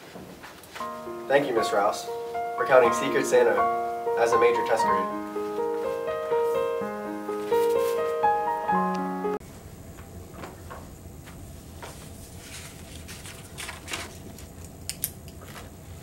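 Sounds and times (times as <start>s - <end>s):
piano music: 0.8s - 9.4s
paper rustling and crinkling: 7.4s - 8.2s, 11.8s - 14.6s.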